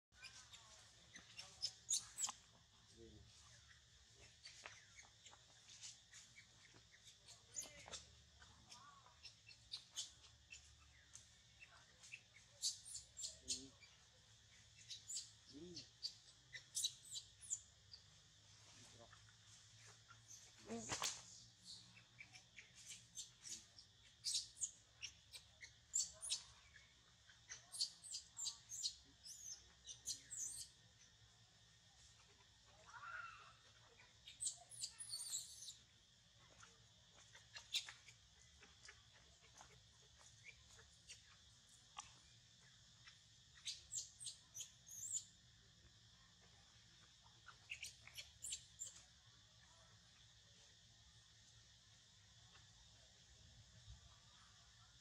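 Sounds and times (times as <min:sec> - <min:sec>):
animal squeaks and chirps: 0:00.2 - 0:02.4, 0:11.6 - 0:13.8, 0:16.0 - 0:17.6, 0:21.6 - 0:26.8, 0:27.5 - 0:30.7, 0:34.2 - 0:35.8, 0:37.5 - 0:38.2, 0:43.6 - 0:45.3, 0:47.4 - 0:49.0.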